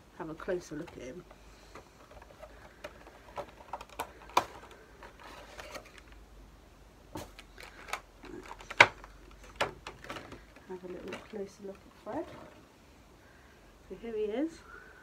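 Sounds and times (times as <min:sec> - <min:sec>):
packaging rustling: 0:00.7 - 0:06.2, 0:07.2 - 0:12.6
packaging clicks and knocks: 0:00.8 - 0:06.2, 0:07.2 - 0:11.4.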